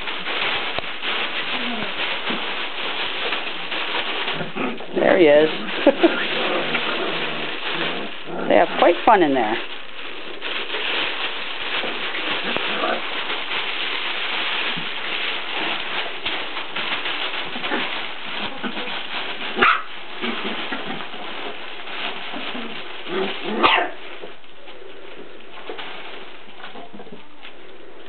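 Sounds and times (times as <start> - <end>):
puppies rustling in fabric tunnel: 0.0 - 28.0
puppy barks: 19.6 - 19.9, 23.6 - 24.0.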